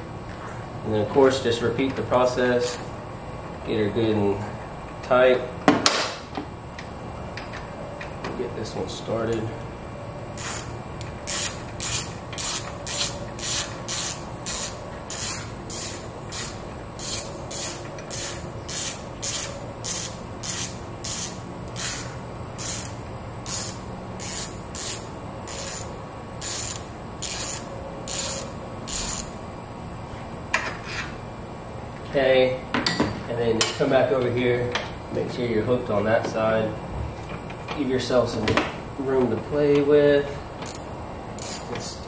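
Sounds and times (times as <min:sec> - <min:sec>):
socket ratchet clicking: 0:10.4 - 0:29.3, 0:40.6 - 0:41.7.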